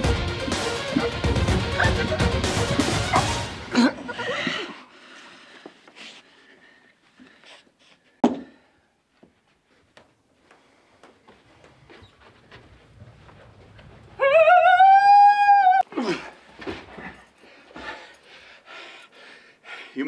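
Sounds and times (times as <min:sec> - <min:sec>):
music: 0:00.0 - 0:03.8.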